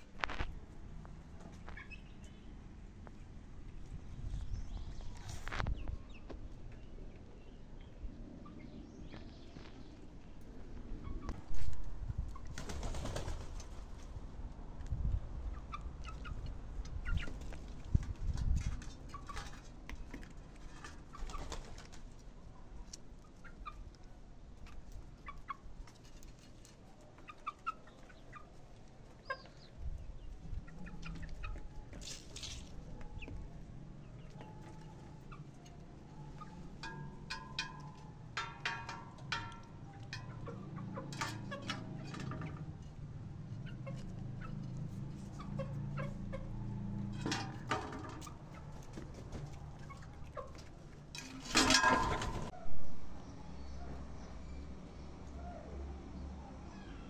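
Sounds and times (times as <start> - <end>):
chickens clucking: 0.2 - 2.5, 14.8 - 52.6.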